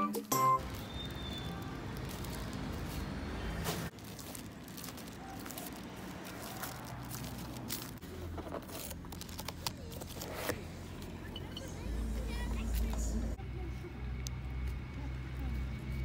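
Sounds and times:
plastic bag rustling and crinkling: 0.6 - 11.1.

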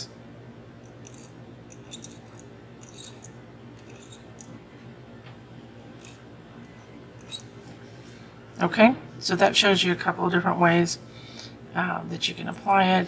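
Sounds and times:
low steady hum: 0.0 - 13.0
pen nib scratching on glass: 1.0 - 4.3, 7.2 - 7.4.

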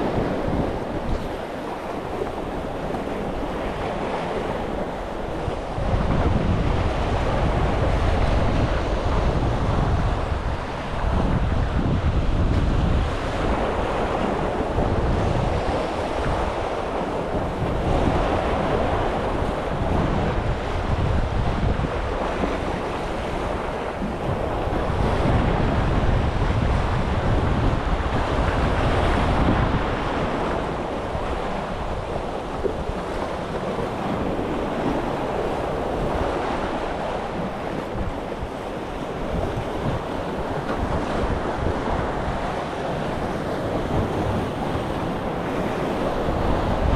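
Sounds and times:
wind buffeting microphone: 0.0 - 46.9.

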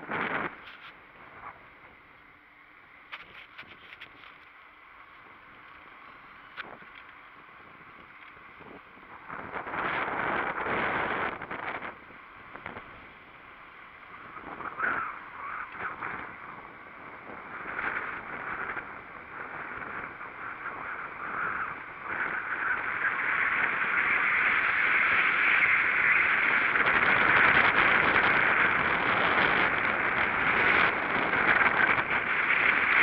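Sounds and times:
wind and road noise rushing: 0.0 - 33.0.

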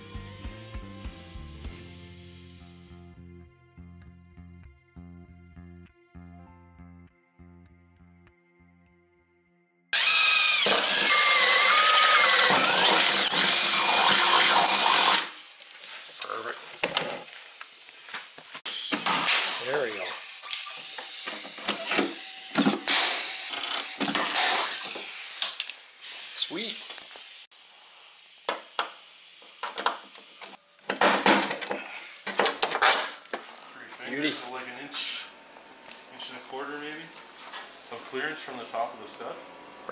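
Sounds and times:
cordless drill boring into metal: 10.0 - 15.4, 18.7 - 26.4.

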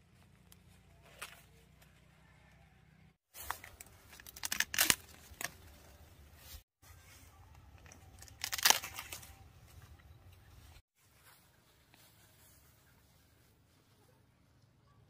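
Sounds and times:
husks and leaves crackling: 3.3 - 13.8
corn ears snapping off stalks: 3.4 - 5.7, 7.8 - 9.4.

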